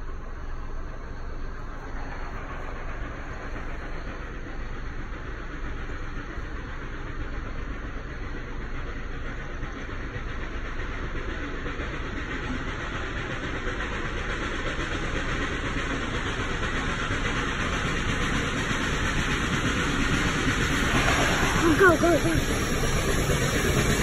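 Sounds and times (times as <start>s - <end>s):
hiss: 0.0s - 24.0s
vehicle engine rumble: 0.0s - 24.0s.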